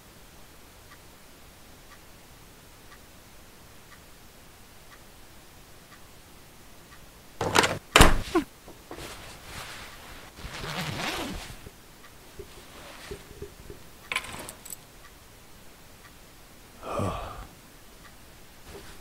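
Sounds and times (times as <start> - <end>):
scraping and rustling: 7.4 - 11.8, 12.4 - 14.8.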